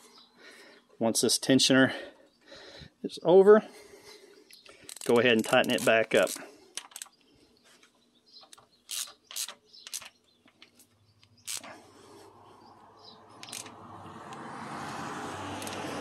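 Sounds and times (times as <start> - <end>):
ratchet wrench rasping: 4.6 - 7.1, 8.5 - 10.8, 11.4 - 11.8, 13.4 - 13.8, 15.6 - 16.0.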